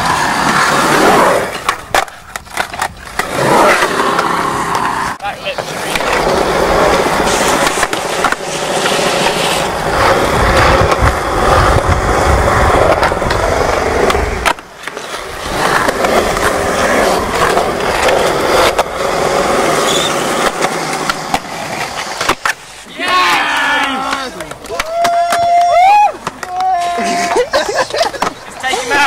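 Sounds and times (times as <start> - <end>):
skateboard trucks grinding ledge: 0.0 - 29.0
skateboard wheels rolling on concrete: 0.0 - 29.0.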